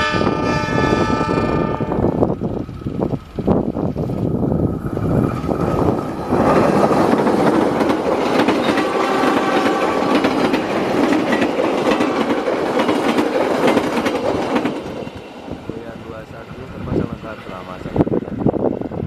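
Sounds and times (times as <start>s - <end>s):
locomotive engine rumbling: 0.0s - 19.0s
train wheels rushing on rails: 0.0s - 19.0s
clickety-clack over rail joints: 5.0s - 15.4s.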